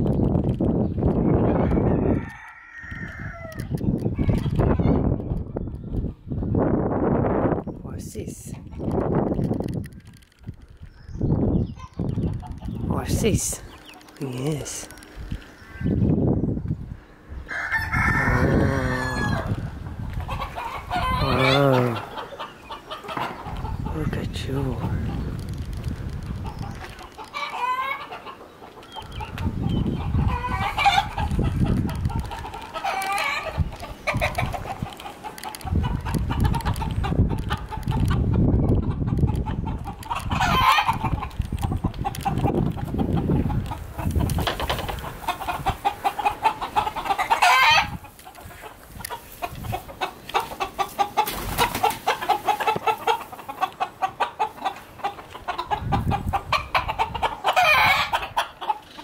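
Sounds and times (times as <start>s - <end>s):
roosters crowing: 1.2s - 6.2s, 17.0s - 59.0s
hens clucking: 8.2s - 59.0s.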